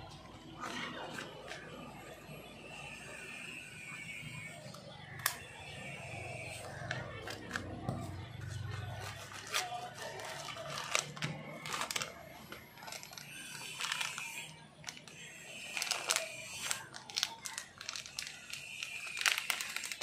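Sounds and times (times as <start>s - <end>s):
plastic packaging crinkling: 8.6s - 20.0s.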